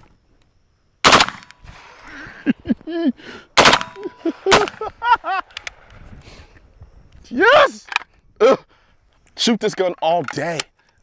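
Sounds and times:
automatic gunfire: 0:01.0 - 0:01.9, 0:03.6 - 0:04.8.

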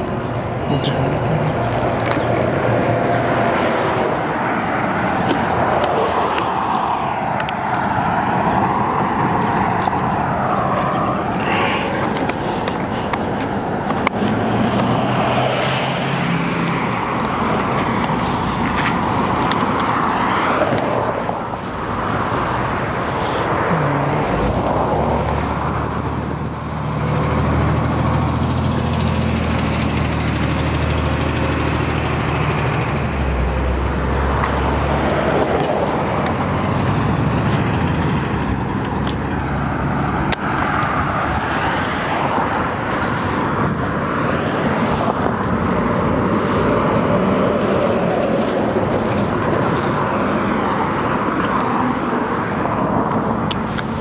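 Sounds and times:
heavy vehicle engine drone: 0:00.0 - 0:54.0
road traffic passing: 0:00.0 - 0:54.0.

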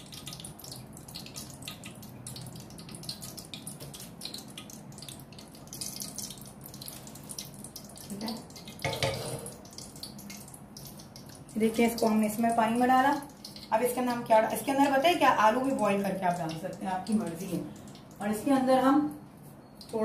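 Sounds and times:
oil sizzling in a wok: 0:00.0 - 0:15.9.

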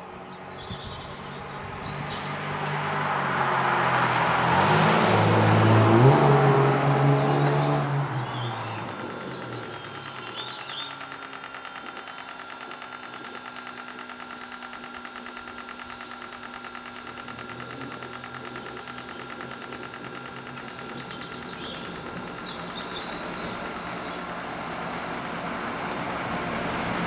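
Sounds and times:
jet turbine whine: 0:00.0 - 0:27.0
fast even ticking: 0:07.1 - 0:27.0.

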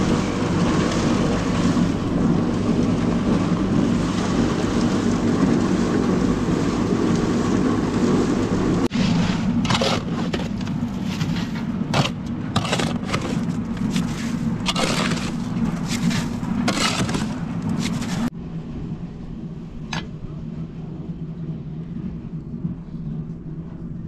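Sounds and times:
shovel scraping wet mortar: 0:08.9 - 0:18.3.

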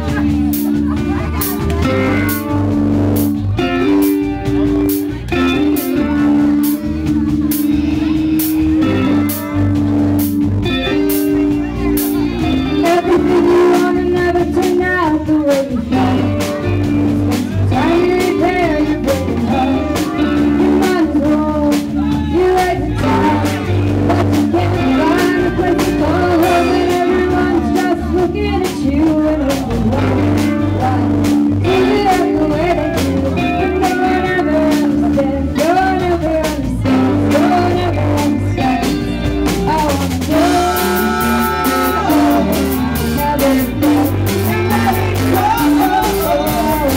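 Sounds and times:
guitar: 0:00.0 - 0:46.9
steady drum beat: 0:00.0 - 0:46.9
woman singing: 0:12.5 - 0:46.9.

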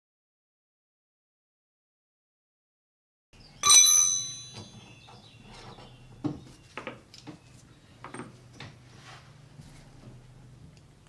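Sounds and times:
spanner and socket bar knocks: 0:03.6 - 0:04.9
steel tool clanging on metal: 0:03.6 - 0:05.3.

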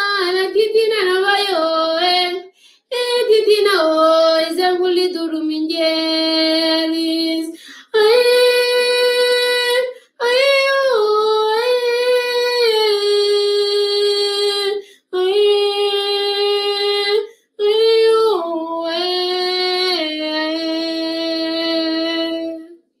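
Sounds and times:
woman singing unaccompanied: 0:00.0 - 0:22.8.

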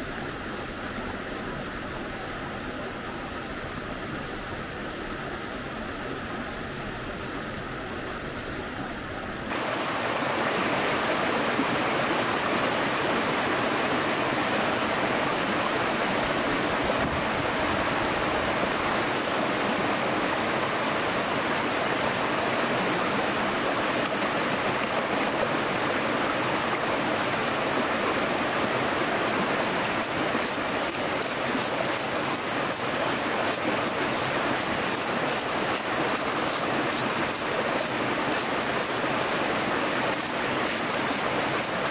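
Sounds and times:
stream rushing over rocks: 0:00.0 - 0:41.9.

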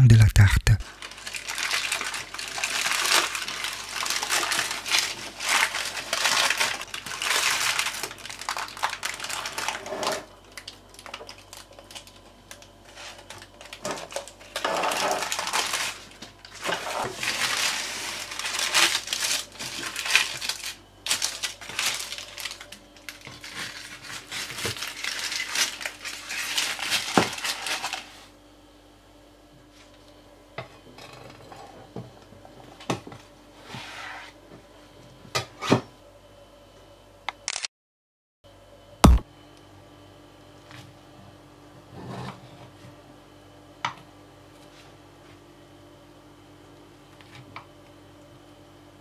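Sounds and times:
baking paper rustling: 0:00.9 - 0:10.2, 0:11.0 - 0:28.3.

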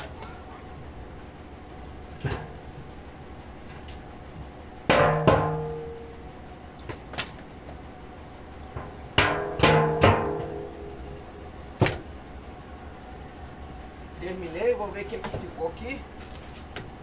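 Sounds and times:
wooden frames knocking on metal drum: 0:04.9 - 0:06.0, 0:08.7 - 0:10.8.

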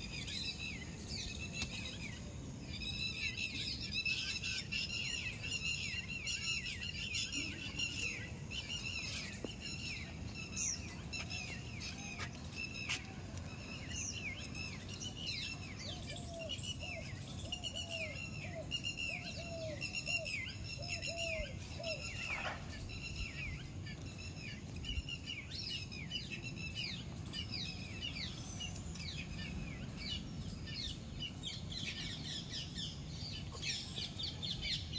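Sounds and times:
birds chirping: 0:00.0 - 0:34.9
steady low background noise: 0:00.0 - 0:34.9.

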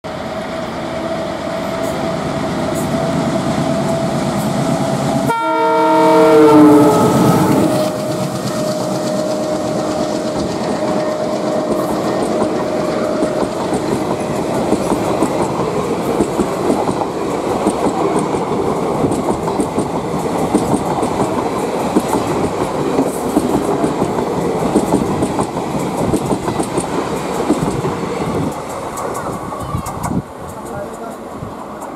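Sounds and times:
train horn: 0:00.4 - 0:13.6
train wheels clattering over rail joints: 0:07.6 - 0:31.9.

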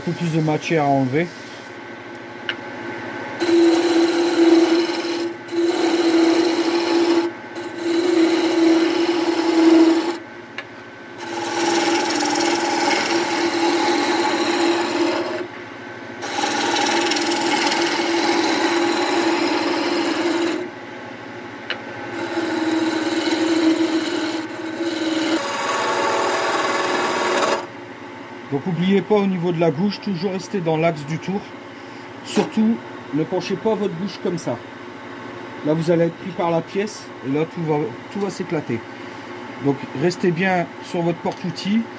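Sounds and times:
gouge scraping spinning wood: 0:03.4 - 0:10.2, 0:11.2 - 0:15.5, 0:16.2 - 0:20.7, 0:22.1 - 0:27.7
lathe motor hum: 0:03.4 - 0:10.2, 0:11.2 - 0:15.5, 0:16.2 - 0:20.7, 0:21.7 - 0:27.7.

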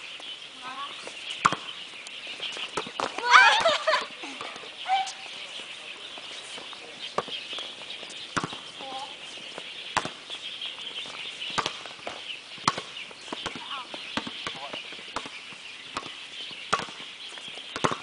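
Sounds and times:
players shouting: 0:03.2 - 0:05.2.

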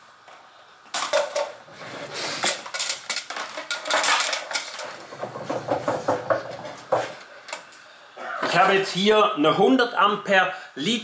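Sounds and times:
hard objects clattering on table: 0:00.9 - 0:07.7.

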